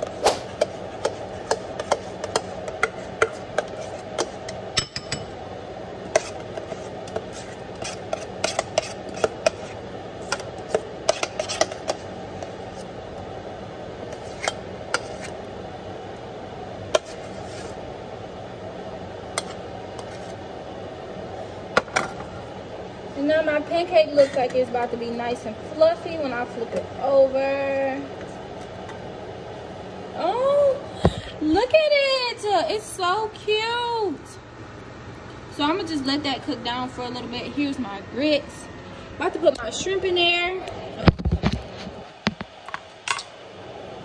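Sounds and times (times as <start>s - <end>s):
spoon scraping saucepan: 0.0s - 5.1s, 6.1s - 12.0s, 14.1s - 15.4s
background hum: 0.0s - 44.0s.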